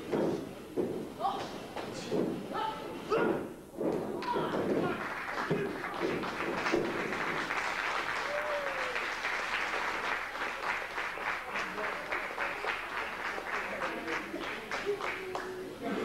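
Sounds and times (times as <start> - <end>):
crowd clapping: 4.2 - 15.8.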